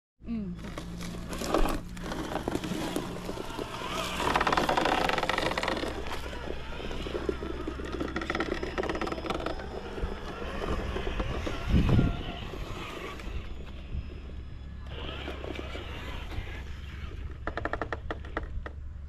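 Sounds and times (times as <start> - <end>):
electric motor whining: 0.5 - 19.0
tyres scrabbling on stone: 0.6 - 13.6.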